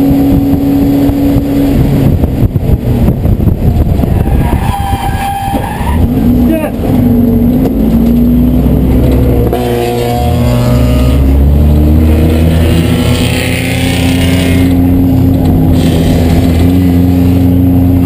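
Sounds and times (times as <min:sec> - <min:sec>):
race car engine running: 0:06.0 - 0:18.0.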